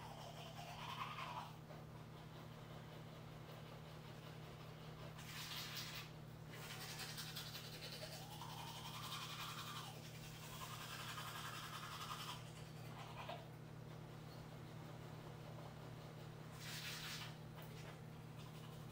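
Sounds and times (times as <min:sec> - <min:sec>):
toothbrush scrubbing teeth: 0:00.0 - 0:01.6, 0:04.2 - 0:13.4, 0:16.5 - 0:18.9
low steady hum: 0:00.0 - 0:18.9.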